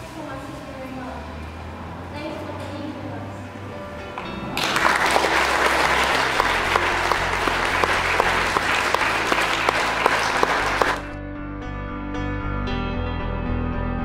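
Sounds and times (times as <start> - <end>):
children clapping: 4.2 - 11.2.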